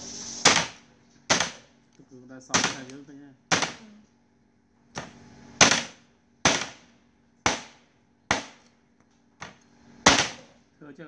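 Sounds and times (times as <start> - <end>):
cleaver chopping on wooden block: 0.5 - 1.6, 2.6 - 3.8, 5.0 - 6.8, 7.4 - 8.6, 10.1 - 10.5.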